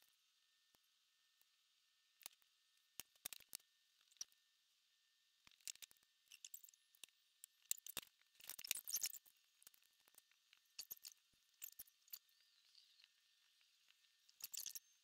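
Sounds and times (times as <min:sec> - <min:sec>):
clicks and rustles of threads: 0:02.1 - 0:04.4, 0:05.4 - 0:15.0.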